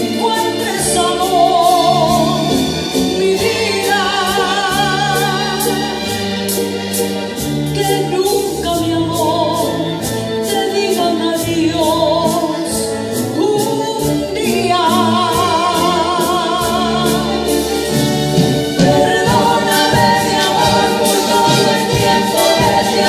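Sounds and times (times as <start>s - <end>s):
women singing with vibrato: 0.0s - 6.7s, 7.4s - 23.0s
orchestra with strings: 0.0s - 23.0s.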